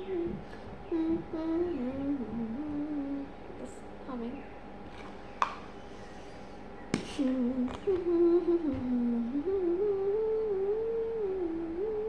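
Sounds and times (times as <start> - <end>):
person humming a slow tune: 0.0 - 3.7, 7.1 - 12.0.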